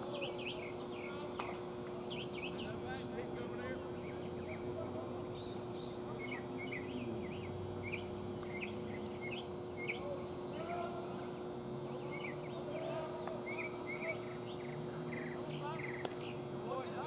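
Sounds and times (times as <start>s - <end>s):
small birds chirping: 0.0s - 1.3s, 2.0s - 11.2s, 11.8s - 16.5s
steady low hum: 0.0s - 17.0s.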